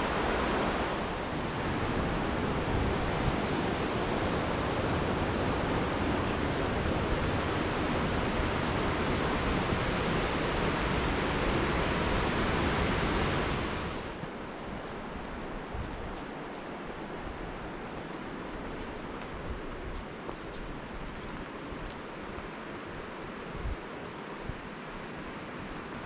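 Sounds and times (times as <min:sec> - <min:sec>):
whitewater rushing in creek: 0:00.0 - 0:15.6.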